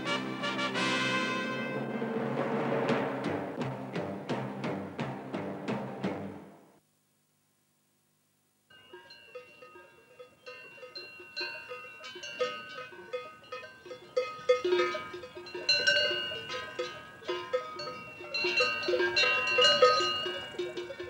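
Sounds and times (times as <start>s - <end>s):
cowbells clanking: 8.7s - 21.0s.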